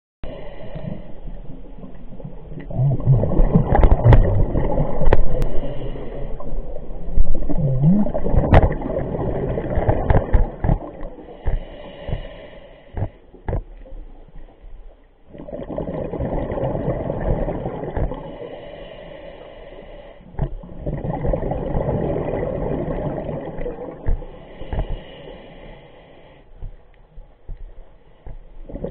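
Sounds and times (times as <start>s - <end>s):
bubbles gurgling underwater: 0.7s - 5.8s, 6.4s - 11.3s, 15.3s - 18.4s, 20.4s - 24.3s.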